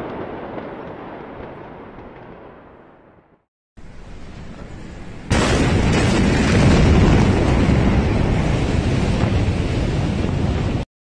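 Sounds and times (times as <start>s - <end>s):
explosion blast: 5.3s - 10.8s.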